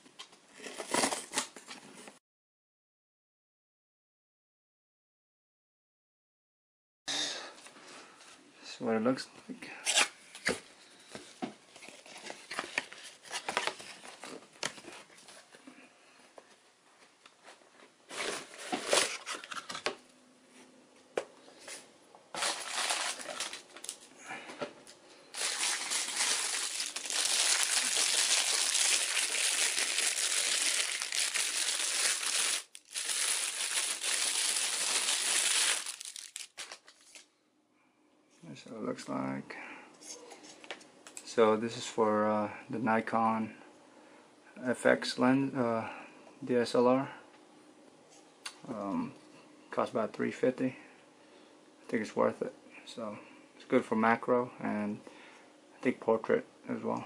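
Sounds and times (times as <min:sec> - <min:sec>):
plastic bag crinkling: 0:22.3 - 0:24.1, 0:25.3 - 0:37.3
cardboard box and paper rustling: 0:22.4 - 0:23.9, 0:25.4 - 0:37.2.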